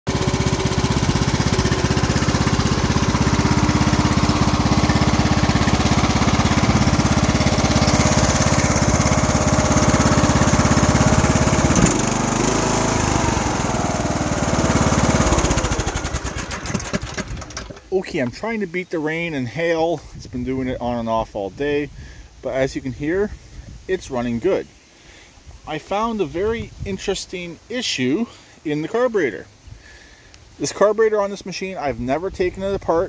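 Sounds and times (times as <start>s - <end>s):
mower engine running: 0.1s - 18.3s.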